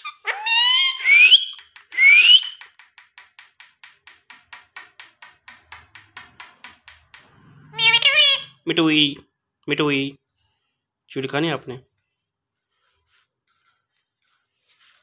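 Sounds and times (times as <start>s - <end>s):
parakeet calling: 0.0s - 1.6s, 7.6s - 8.6s
beak tapping on glass: 2.9s - 7.4s.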